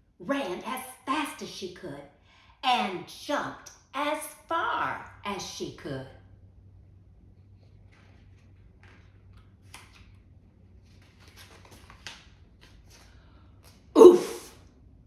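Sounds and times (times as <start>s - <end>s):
paper rustling: 7.6s - 13.8s
woman exclaiming: 14.0s - 14.5s.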